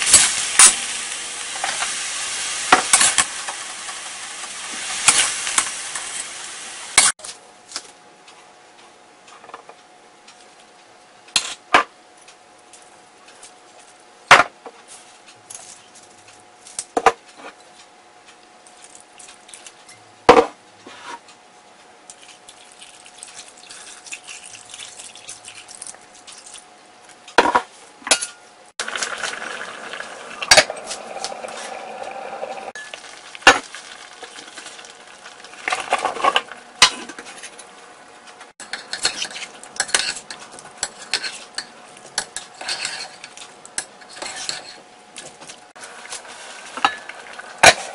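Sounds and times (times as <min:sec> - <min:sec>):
metal spoon clinking and scraping: 0:38.7 - 0:43.4.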